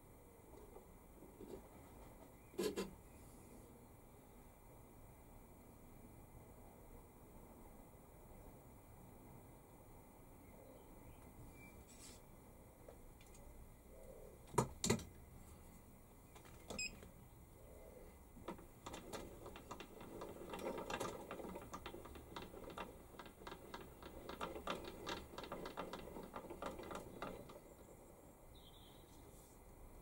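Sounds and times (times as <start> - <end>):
handwheel ticking and rattling: 18.4 - 27.7.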